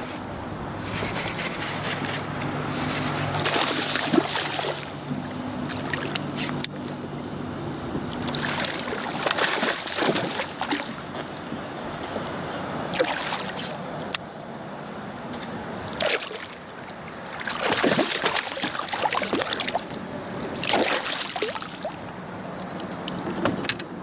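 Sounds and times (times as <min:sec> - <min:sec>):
fish splashing in water: 0:02.7 - 0:06.5, 0:08.1 - 0:11.1, 0:12.9 - 0:13.8, 0:15.9 - 0:23.2.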